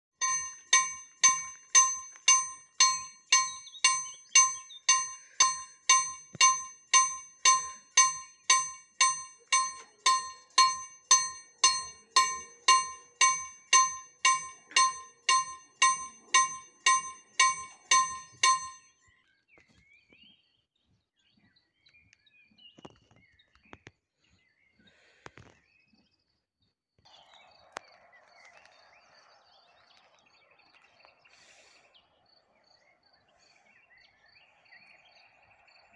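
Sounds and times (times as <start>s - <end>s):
level crossing bell ringing: 0.2s - 18.9s.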